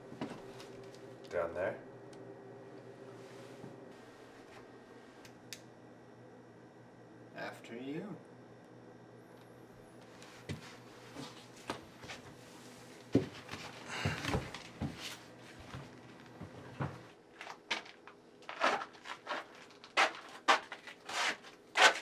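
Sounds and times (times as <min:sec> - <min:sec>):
rustling scrape: 0:18.4 - 0:22.0.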